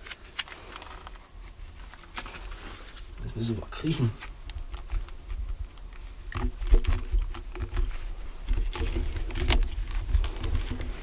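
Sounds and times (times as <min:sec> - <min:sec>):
camera handling bumps: 0:05.8 - 0:11.0.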